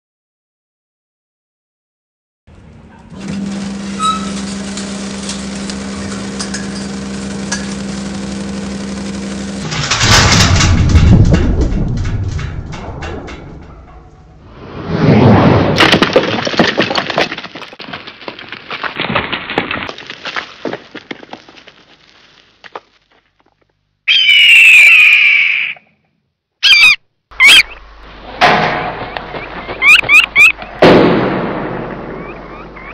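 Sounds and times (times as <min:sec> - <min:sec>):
low mechanical hum: 0:02.5 - 0:14.6
sudden crashes: 0:03.2 - 0:21.2, 0:28.1 - 0:29.8, 0:30.7 - 0:32.6
bird of prey screaming: 0:24.1 - 0:25.9, 0:26.6 - 0:27.8.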